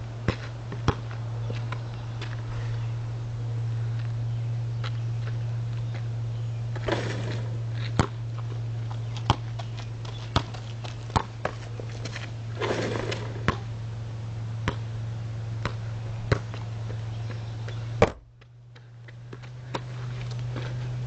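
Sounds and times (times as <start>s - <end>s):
steady low hum: 0.0s - 21.0s
basketball bouncing on asphalt: 0.2s - 2.8s, 3.9s - 13.8s, 14.5s - 21.0s
basketball hitting rim and backboard: 0.3s - 1.2s, 6.7s - 8.6s, 12.6s - 13.8s, 14.6s - 14.9s, 15.6s - 16.7s.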